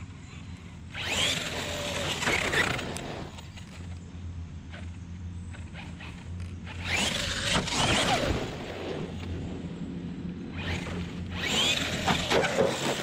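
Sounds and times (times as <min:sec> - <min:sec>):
electric motor whining: 0:00.9 - 0:03.4, 0:05.7 - 0:09.3, 0:10.5 - 0:13.0
tyres churning dirt: 0:00.9 - 0:03.9, 0:10.4 - 0:13.0.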